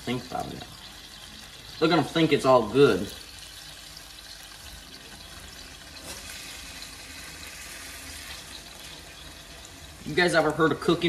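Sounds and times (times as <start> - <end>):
steak sizzling in a pan: 0.0 - 11.0.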